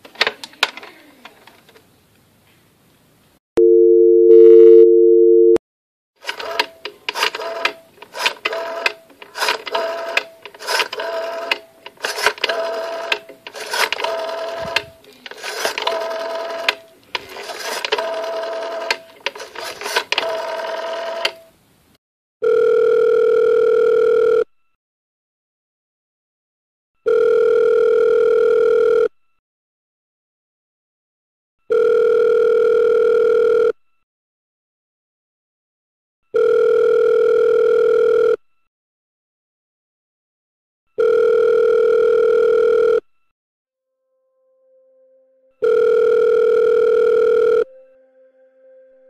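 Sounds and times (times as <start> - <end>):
dial tone: 3.6 - 5.6, 22.4 - 24.6, 27.1 - 29.2, 31.7 - 33.8, 36.4 - 38.5, 41.0 - 43.1, 44.8 - 48.3
ringback tone: 3.6 - 5.6, 44.0 - 49.0
short keypad tones: 3.6 - 5.6.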